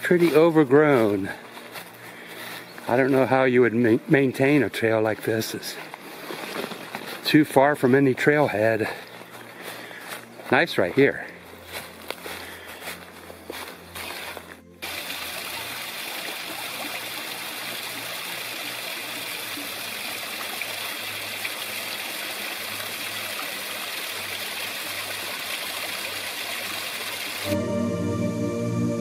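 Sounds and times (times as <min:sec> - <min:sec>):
footsteps on a trail: 0:00.0 - 0:15.0
stream water rushing: 0:14.8 - 0:27.5.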